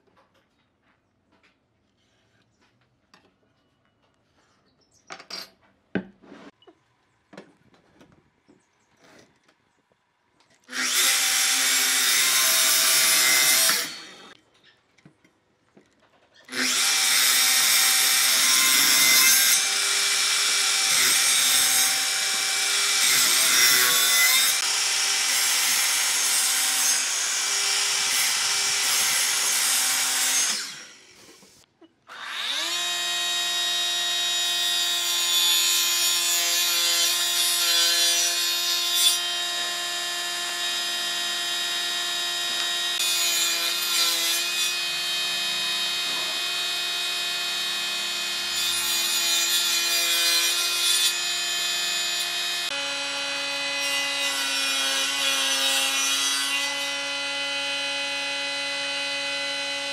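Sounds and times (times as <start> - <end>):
miter saw cutting wood: 10.6 - 14.4, 16.5 - 59.9
saw motor whine: 51.2 - 54.3, 56.7 - 59.9.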